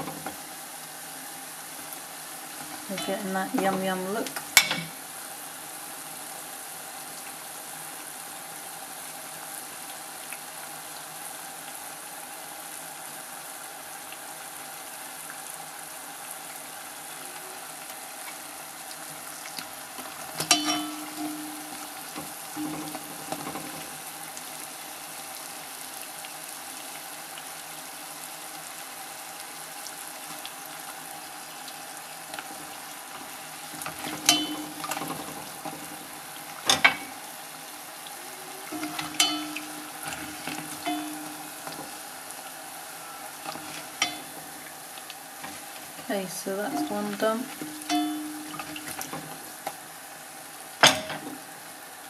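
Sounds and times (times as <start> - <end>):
pastries sizzling in hot oil: 0.0 - 52.0
utensil knocking against pot: 20.4 - 21.8, 38.7 - 41.4.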